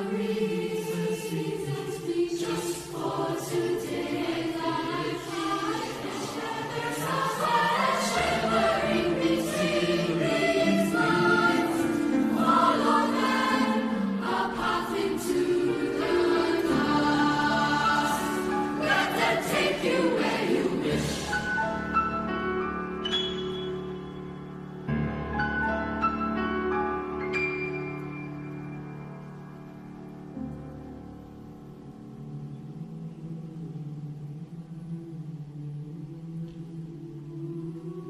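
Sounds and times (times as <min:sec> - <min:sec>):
children's choir singing: 0:00.0 - 0:22.3.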